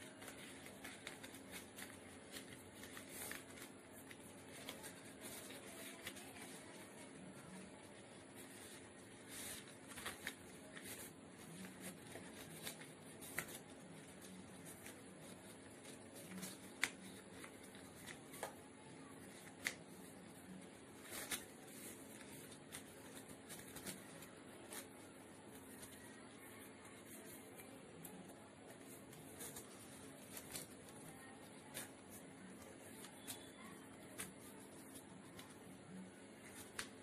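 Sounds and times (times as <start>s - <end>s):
paper folds snapping: 0.0s - 6.8s, 8.4s - 20.1s, 21.0s - 25.0s, 36.4s - 37.0s
paper rustling and crinkling: 0.0s - 37.0s.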